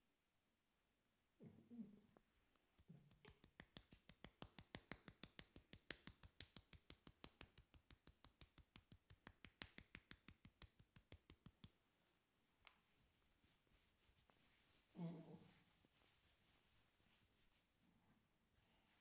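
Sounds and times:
hands tapping on head: 0:02.8 - 0:11.8.

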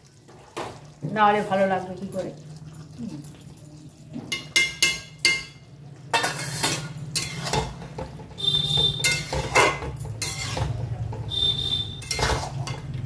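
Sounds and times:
metal spoon scraping a pot: 0:06.1 - 0:13.0.

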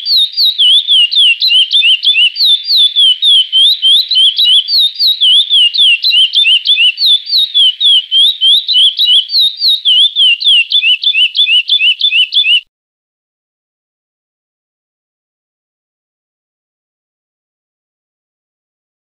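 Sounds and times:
finch singing whistled notes: 0:00.0 - 0:12.7.

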